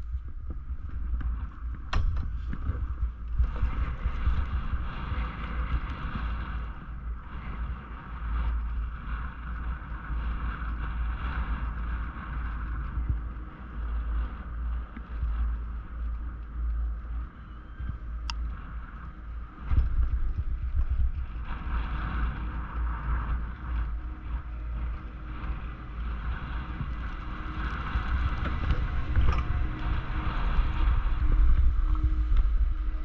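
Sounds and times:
steady higher hum: 0.0s - 33.0s
wind buffeting microphone: 0.0s - 33.0s.

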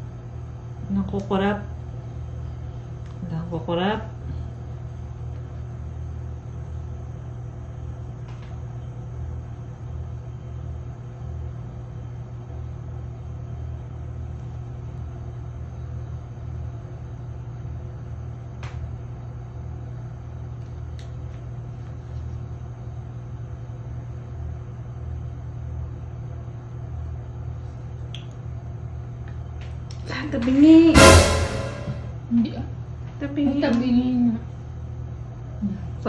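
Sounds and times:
steady low hum: 31.0s - 32.3s.

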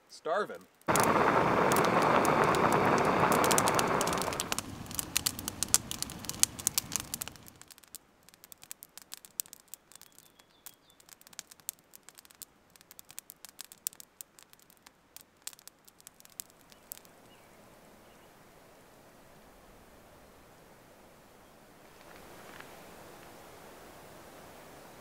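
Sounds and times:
campfire crackling and popping: 0.5s - 17.4s
rushing hiss: 0.9s - 7.6s.

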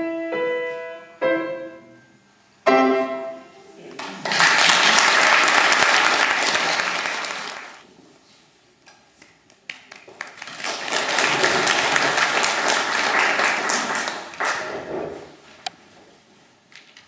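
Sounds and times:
audience applause: 4.0s - 7.8s, 9.7s - 14.9s.

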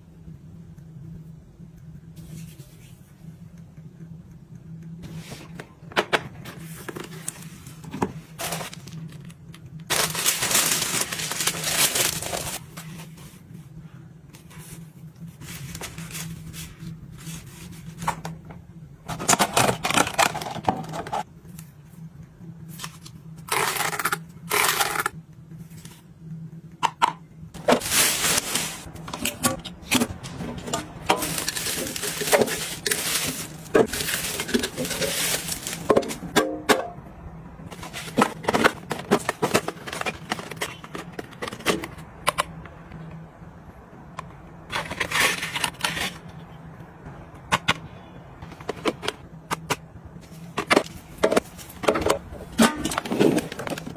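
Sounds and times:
plastic packaging crinkling: 8.3s - 12.7s, 19.2s - 21.3s, 27.6s - 36.3s.

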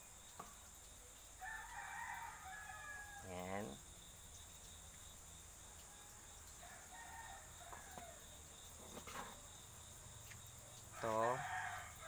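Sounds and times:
high buzz of insects: 0.0s - 12.0s
distant rooster crowing: 1.4s - 3.7s, 5.8s - 8.4s, 10.9s - 12.0s.

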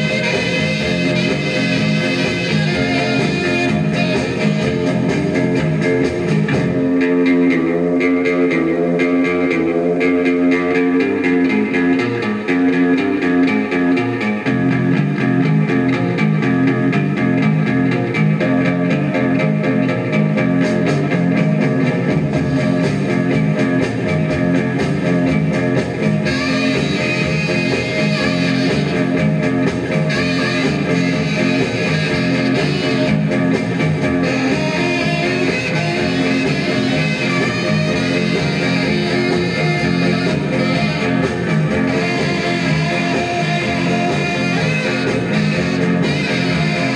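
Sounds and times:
guitar pop music from record player: 0.0s - 46.9s.

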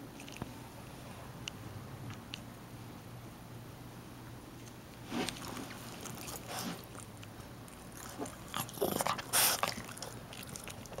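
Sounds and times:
dog sniffing and snuffling: 5.0s - 11.0s.

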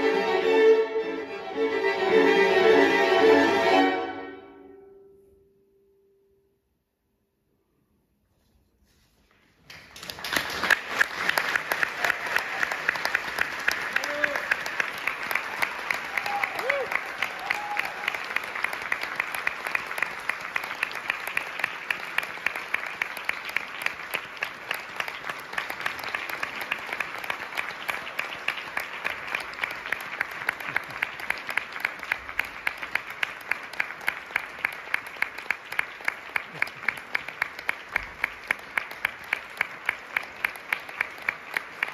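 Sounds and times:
hands clapping close by: 9.6s - 41.9s
audience applauding: 9.7s - 41.9s.

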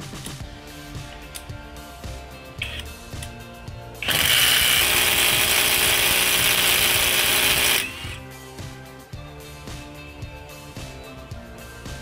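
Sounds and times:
impact driver rattling: 4.0s - 8.2s.

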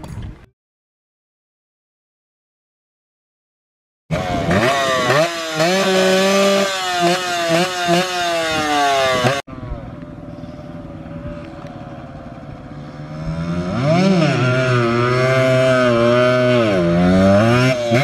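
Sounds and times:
distant motorcycles riding: 4.1s - 18.0s
motorcycle revving: 4.1s - 18.0s.

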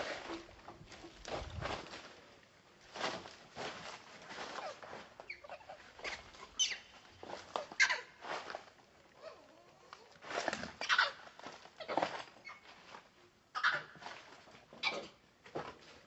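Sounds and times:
infant monkey crying: 13.6s - 13.9s.

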